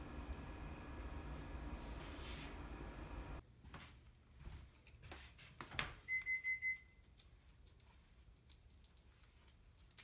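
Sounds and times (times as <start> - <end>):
hands rustling tape: 7.0 - 10.0.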